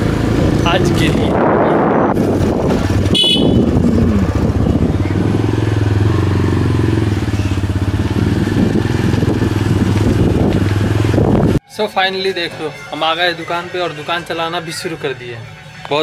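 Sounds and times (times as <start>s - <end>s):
motorcycle engine running: 0.0s - 11.6s.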